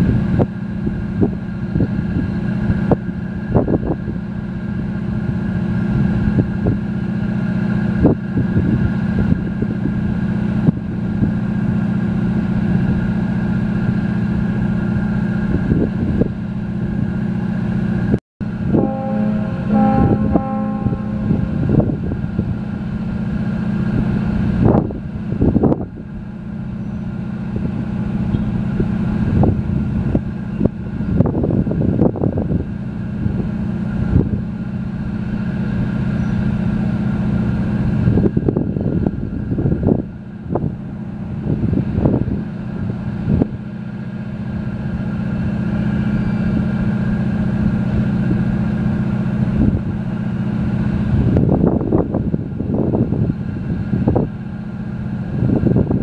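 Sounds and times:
wind gusts on microphone: 0.0s - 11.5s, 27.6s - 34.5s, 37.9s - 43.7s, 49.4s - 56.0s
diesel engines droning: 0.0s - 56.0s.

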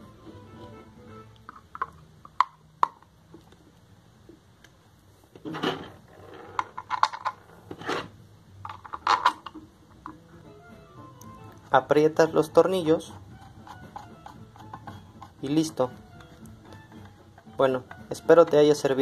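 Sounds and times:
cover scraping: 5.4s - 9.6s.

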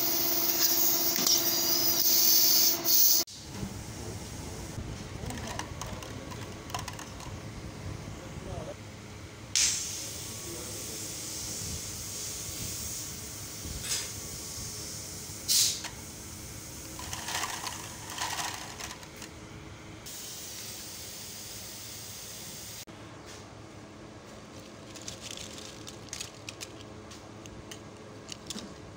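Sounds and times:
loud bursts of hiss: 0.0s - 3.3s, 9.6s - 18.5s, 20.1s - 22.9s
machine hum and hiss: 0.0s - 28.9s.

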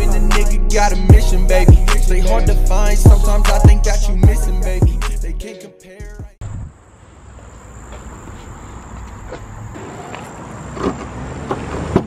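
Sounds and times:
high insect drone: 6.5s - 10.6s.

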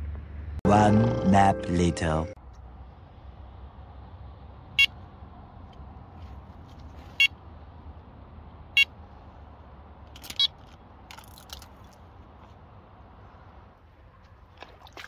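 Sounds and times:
soft rustling: 6.0s - 7.2s.

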